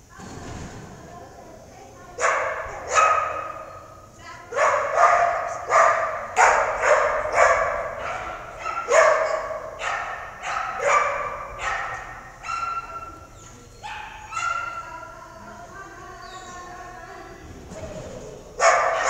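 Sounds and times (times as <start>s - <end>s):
dog barking with echo: 2.2s - 3.9s, 4.5s - 15.0s, 18.5s - 19.0s.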